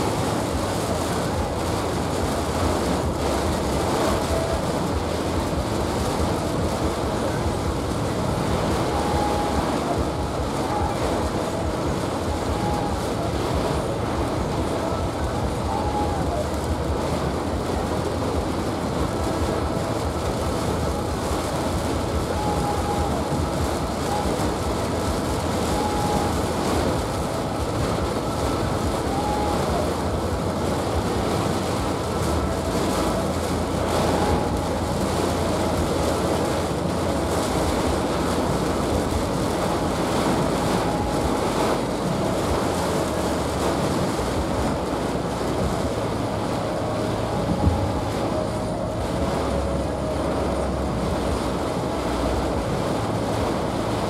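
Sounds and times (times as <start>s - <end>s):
heavy rain on car roof: 0.0s - 54.0s.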